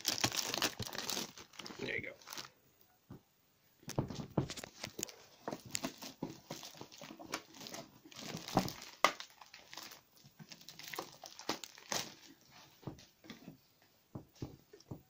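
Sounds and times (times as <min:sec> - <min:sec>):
plastic wrapping crinkling: 0:00.0 - 0:02.6, 0:03.9 - 0:12.7.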